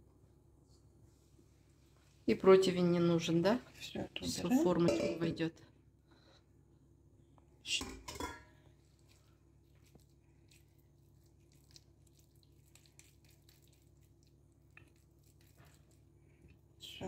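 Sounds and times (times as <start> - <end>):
low steady hum: 0.0 - 17.0
soft squishes of minced meat: 8.5 - 17.0.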